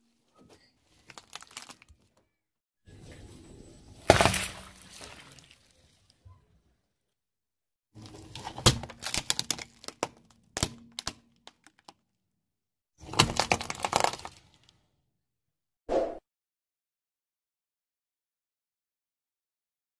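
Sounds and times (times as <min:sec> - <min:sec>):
tyre crushing brittle objects: 0:01.0 - 0:02.2, 0:04.0 - 0:05.3, 0:08.0 - 0:12.0, 0:13.0 - 0:14.7.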